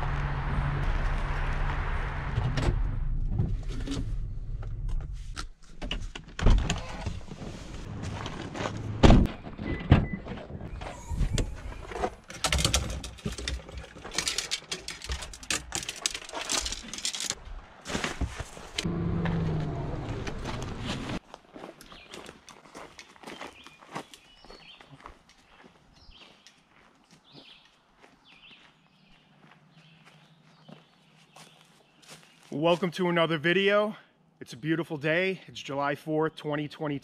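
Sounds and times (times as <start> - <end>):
knocks clicks and rattles: 12.2 - 17.4.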